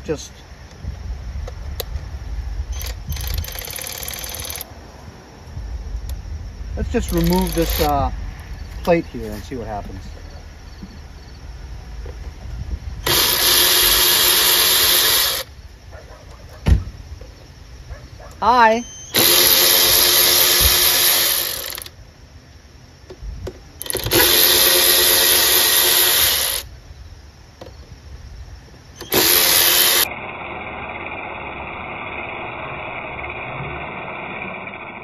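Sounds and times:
electric ratchet whining: 2.7 - 4.7, 6.8 - 8.1, 13.0 - 15.5, 19.1 - 22.0, 23.8 - 26.7, 29.0 - 35.0.

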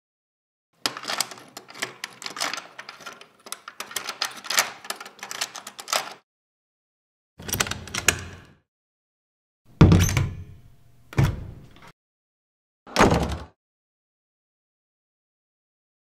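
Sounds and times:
key clicking and rattling in lock: 0.8 - 6.2, 7.4 - 8.5
door handle clunking: 9.8 - 11.8.

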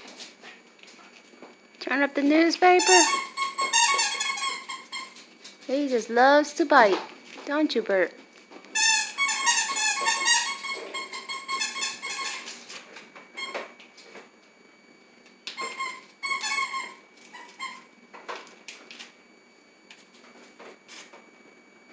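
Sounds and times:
parrot squeaky chattering calls: 2.8 - 5.1.

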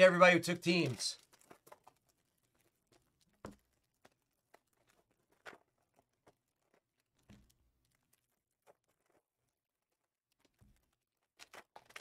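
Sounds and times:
light taps and clicks of card packs: 0.4 - 8.0.

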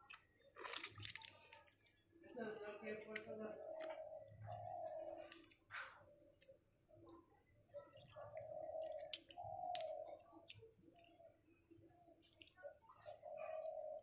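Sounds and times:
snail shells clicking together: 0.0 - 2.0, 8.8 - 12.8.

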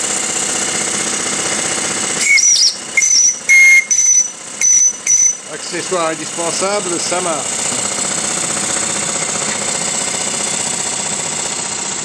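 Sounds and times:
steam engine fast rattling: 0.0 - 12.0
steam whistle toots: 2.2 - 5.6.

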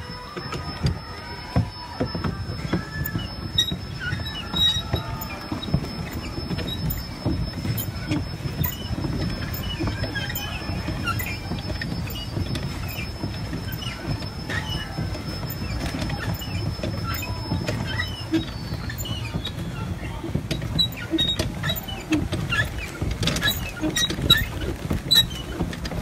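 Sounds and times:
low boat rumble: 0.0 - 26.0
water clicks and patter: 0.3 - 26.0.

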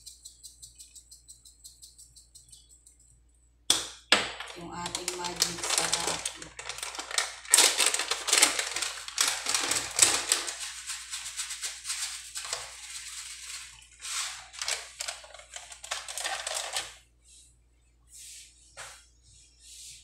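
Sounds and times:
plastic packet crinkling: 4.5 - 17.0.

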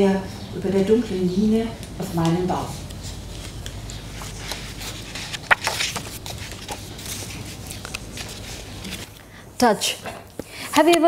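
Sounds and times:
low room hum: 0.0 - 11.0
book pages rustling: 2.7 - 9.2.

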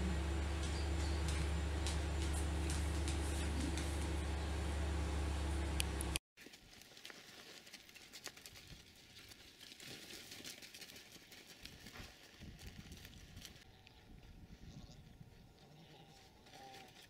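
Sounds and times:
low hum: 0.0 - 6.2
footsteps on dry dirt and brush: 0.1 - 4.5.

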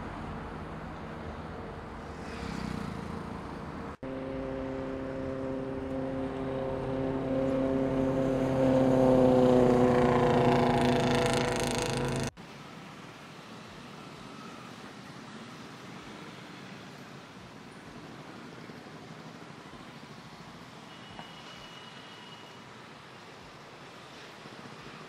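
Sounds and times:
low traffic rumble: 0.0 - 20.8
motorcycle engine at high revs: 4.0 - 12.4.

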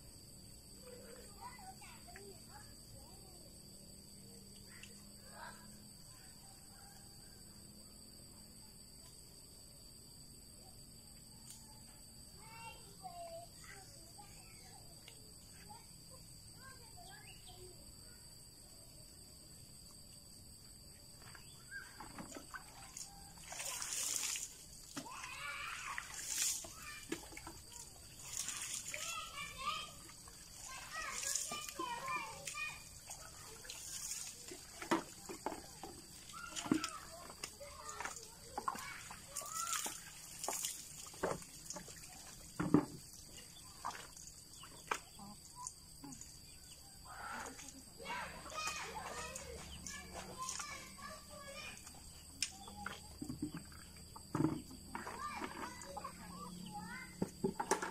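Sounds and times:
water sloshing in bucket: 21.2 - 57.9
water pouring and splashing on concrete: 22.4 - 44.8.

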